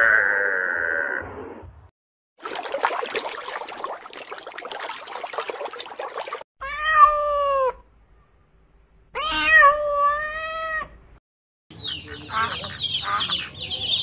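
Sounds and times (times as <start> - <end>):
cat meowing: 9.2 - 10.9.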